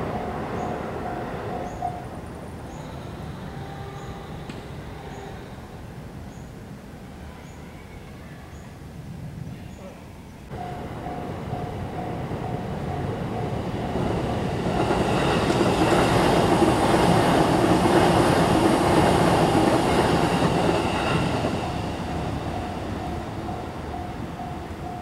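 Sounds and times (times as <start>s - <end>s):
train wheels running: 10.5s - 25.0s.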